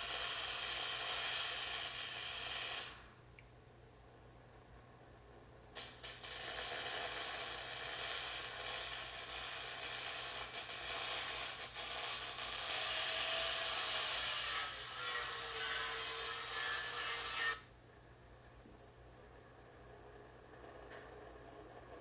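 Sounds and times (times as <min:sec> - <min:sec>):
welding arc crackling hiss: 0:00.0 - 0:03.2, 0:05.8 - 0:17.7.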